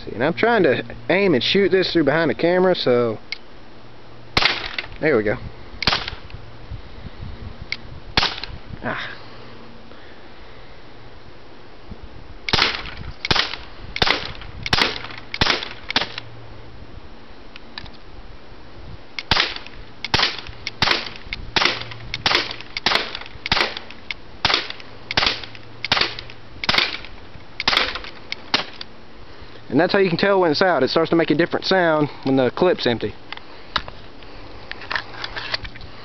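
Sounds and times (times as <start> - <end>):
bb pistol firing pops: 4.4 - 5.0, 5.8 - 6.3, 8.2 - 8.6, 12.5 - 16.2, 19.2 - 28.9
pistol empty clicks: 19.2 - 28.9.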